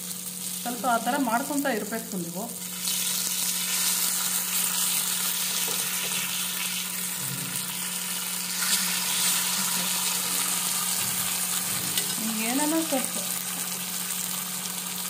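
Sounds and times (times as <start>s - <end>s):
fish sizzling in oil: 0.0s - 15.0s
metal spatula on pan: 11.7s - 12.3s.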